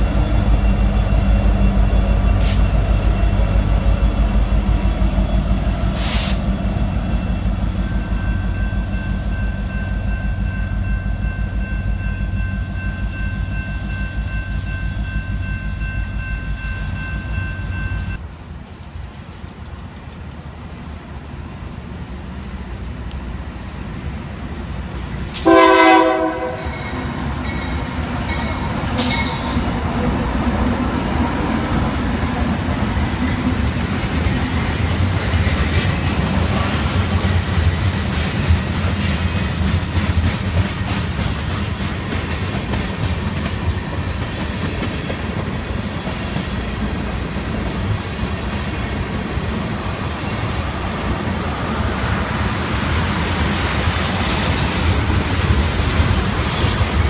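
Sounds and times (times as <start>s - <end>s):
diesel locomotives rumbling: 0.0s - 57.0s
train wheels rolling on rails: 0.0s - 57.0s
loud train horn blast: 25.4s - 27.0s.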